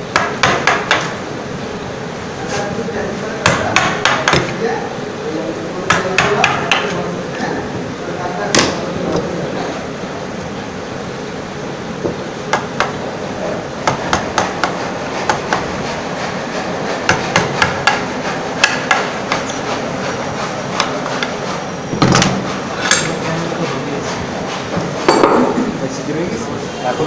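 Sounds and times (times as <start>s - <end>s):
mallet striking a chisel: 0.1s - 1.2s, 3.4s - 4.6s, 5.9s - 7.0s, 12.5s - 13.0s, 13.8s - 15.7s, 17.0s - 19.6s.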